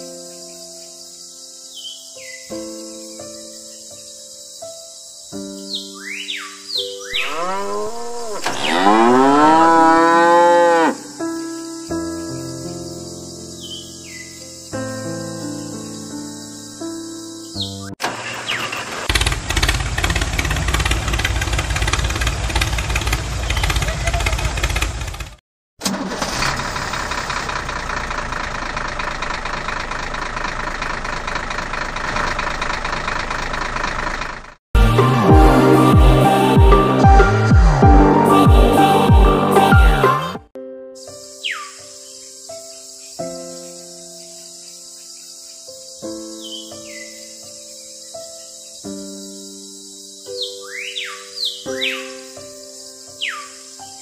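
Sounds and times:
cow mooing: 7.2 - 11.2
tractor engine knocking: 18.9 - 34.6
background music: 34.8 - 40.5.

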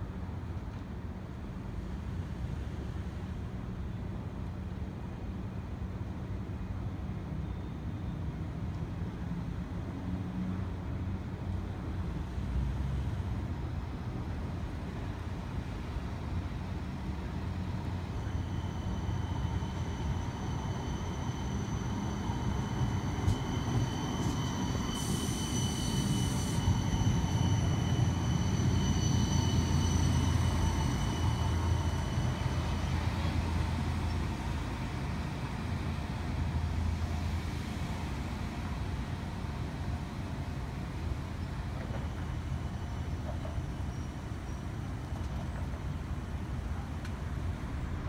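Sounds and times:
streetcar rumble: 0.0 - 48.0
high-pitched whine: 17.8 - 35.5.

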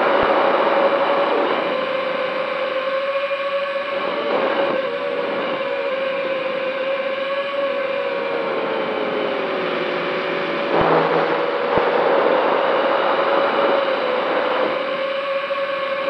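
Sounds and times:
drone motors whining: 7.8 - 16.0
wind rush: 9.6 - 15.3.

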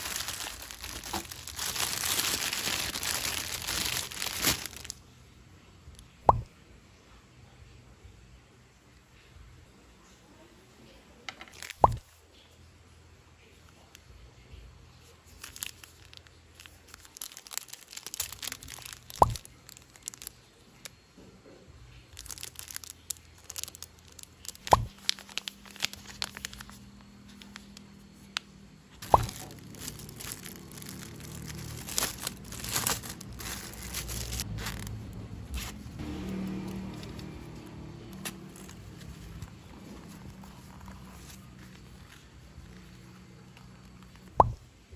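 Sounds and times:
plastic packaging crinkling: 0.0 - 5.0, 11.5 - 12.0, 15.3 - 20.9, 22.2 - 28.4, 29.0 - 44.5.

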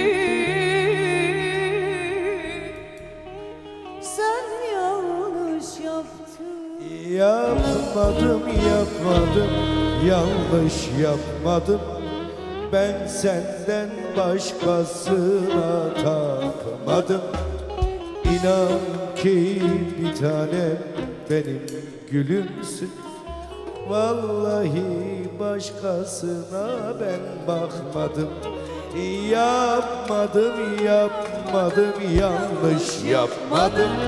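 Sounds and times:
woman singing with vibrato: 0.0 - 3.0, 4.0 - 10.4, 30.1 - 34.0
band playing: 7.2 - 34.0.

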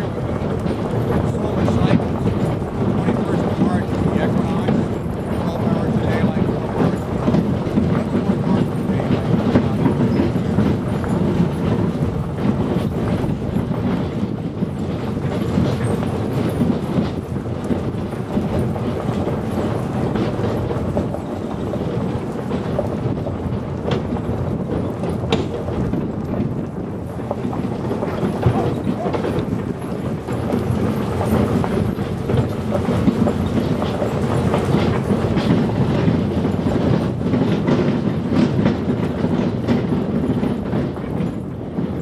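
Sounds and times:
cart wheels rumbling on gravel: 0.0 - 42.0.

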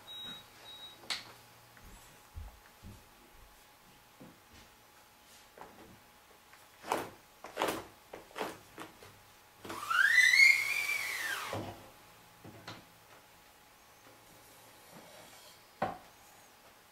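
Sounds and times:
squealing scrape: 9.8 - 11.5.

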